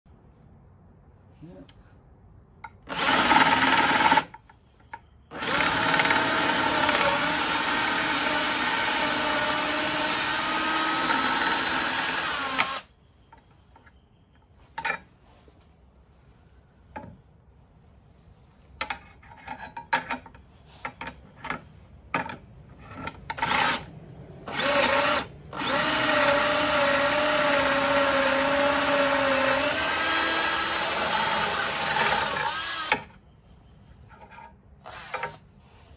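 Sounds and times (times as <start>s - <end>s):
power drill boring into wood: 2.9s - 4.3s, 5.3s - 12.9s, 23.4s - 23.9s, 24.5s - 33.1s, 34.9s - 35.4s.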